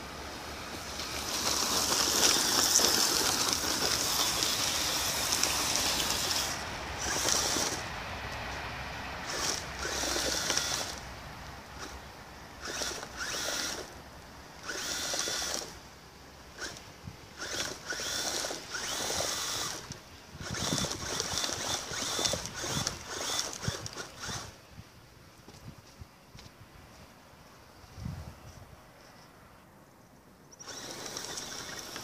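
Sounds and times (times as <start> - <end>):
tyres scrabbling on loose dirt: 0.0 - 14.0, 16.6 - 24.7, 30.6 - 32.0
electric motor whining: 0.8 - 7.9, 9.2 - 11.0, 12.6 - 14.0, 14.6 - 15.8, 17.4 - 24.6, 30.6 - 32.0.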